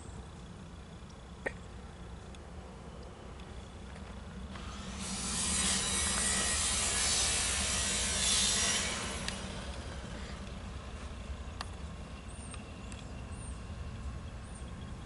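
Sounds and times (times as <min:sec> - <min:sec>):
distant diesel train rumble: 0:00.0 - 0:15.0
loud hissing rush: 0:04.7 - 0:10.4.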